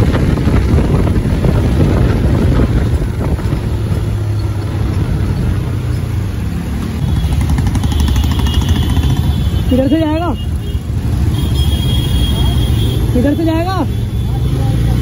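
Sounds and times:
wind buffeting microphone: 0.0 - 6.3
motorcycle engine rumble: 0.0 - 15.0.

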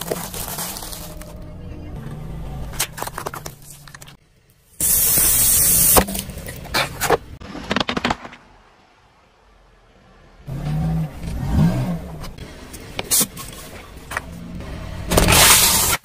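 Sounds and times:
tyre crushing packaged items: 0.0 - 1.4, 2.7 - 4.2
soda bottle bursting with hissing spray: 4.8 - 6.0.

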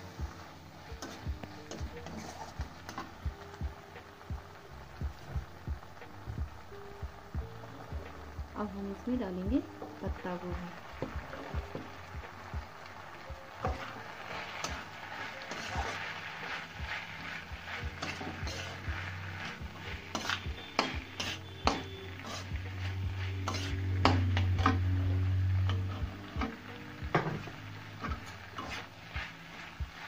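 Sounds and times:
metal spatula scraping a wok: 0.0 - 3.2, 13.6 - 30.0
vegetables sizzling: 0.0 - 30.0
low steady hum: 3.2 - 30.0.

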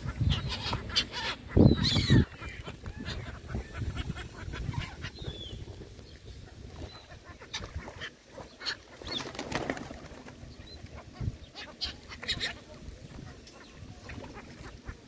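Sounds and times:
birds flapping wings: 8.8 - 11.0.

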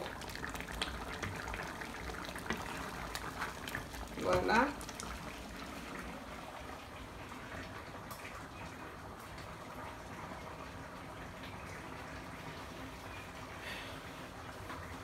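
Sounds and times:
stew simmering with bubbling hiss: 0.0 - 15.0.

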